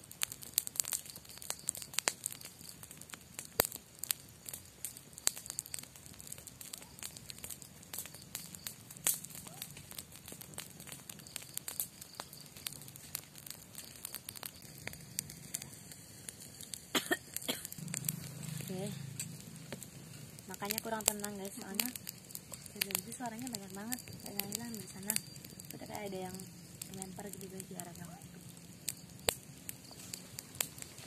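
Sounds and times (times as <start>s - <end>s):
campfire crackling and popping: 0.0s - 31.0s.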